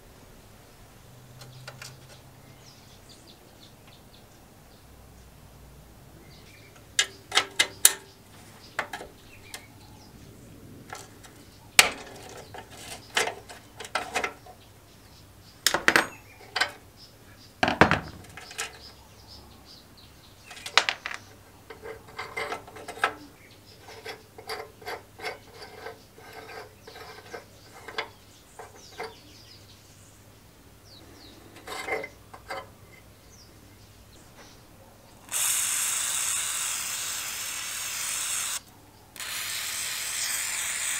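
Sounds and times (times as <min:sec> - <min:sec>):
metal parts clicking and clinking: 0:06.8 - 0:08.1, 0:10.9 - 0:14.6, 0:15.7 - 0:16.8, 0:17.6 - 0:18.9, 0:20.5 - 0:29.2, 0:31.6 - 0:33.0
heavy metal clunk: 0:17.6 - 0:18.8
aerosol can hissing: 0:35.3 - 0:38.6, 0:39.2 - 0:40.9.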